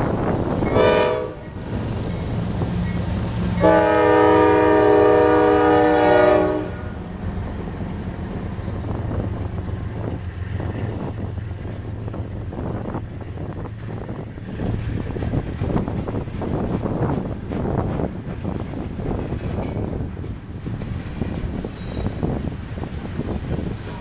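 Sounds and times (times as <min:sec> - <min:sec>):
diesel locomotive rumble: 0:00.0 - 0:24.0
train cars rolling on rails: 0:00.0 - 0:24.0
train air horn blast: 0:00.6 - 0:01.6, 0:03.6 - 0:07.0.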